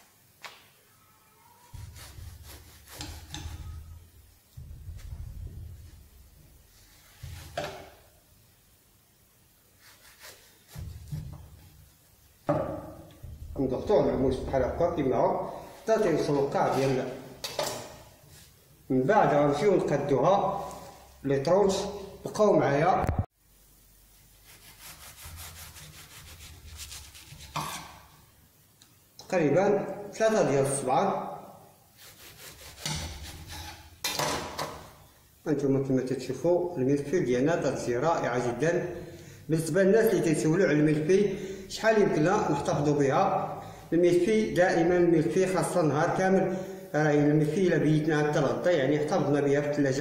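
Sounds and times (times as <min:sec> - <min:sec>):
knife scraping pastry: 0:01.7 - 0:04.0, 0:06.9 - 0:07.7, 0:09.8 - 0:11.6, 0:24.4 - 0:28.2, 0:32.0 - 0:34.0.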